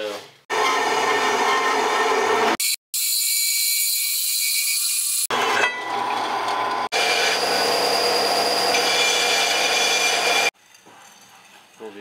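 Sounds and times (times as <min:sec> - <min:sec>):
metal-on-metal screech: 0:07.8 - 0:10.5.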